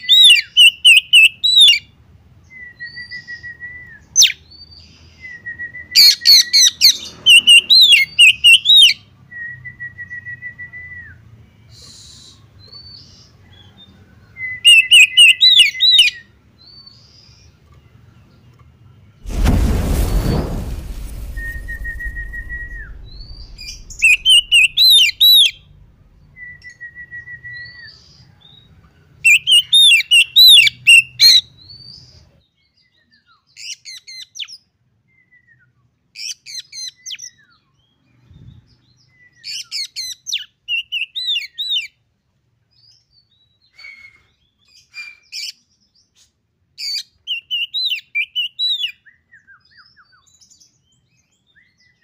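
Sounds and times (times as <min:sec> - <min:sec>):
bird singing whistled phrases: 0:22.0 - 0:27.9.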